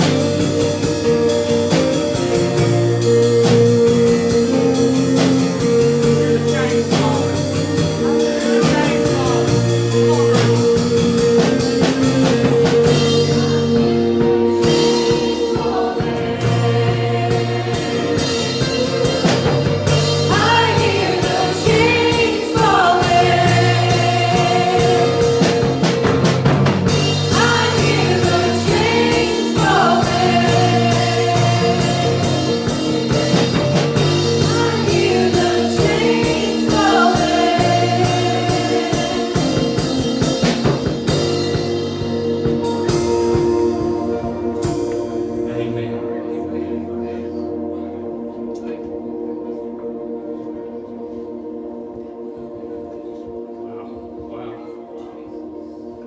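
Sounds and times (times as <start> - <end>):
steady beat: 0.0 - 47.0
keyboard: 0.0 - 56.0
singers into microphones: 12.8 - 25.8, 27.1 - 32.8, 34.2 - 40.0.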